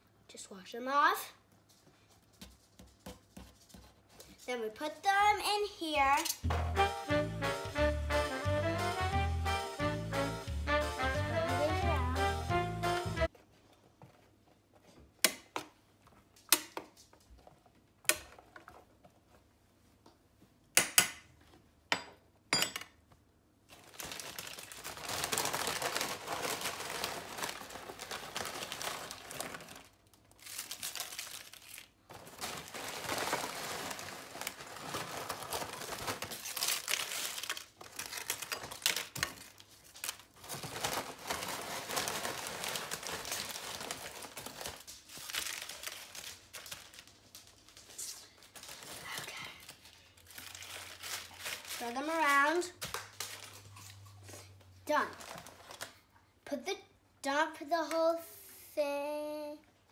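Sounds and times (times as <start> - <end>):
plastic chip bag crinkling: 23.7 - 54.2, 55.0 - 56.0.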